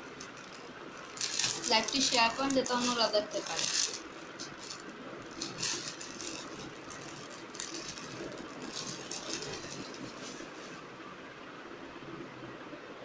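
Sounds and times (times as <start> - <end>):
dresses rustling and crinkling: 0.0 - 11.0.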